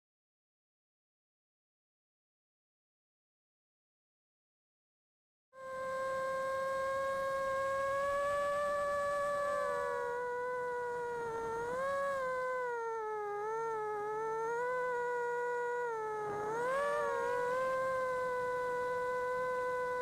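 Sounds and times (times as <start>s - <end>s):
quadcopter motors whining: 5.6s - 20.0s.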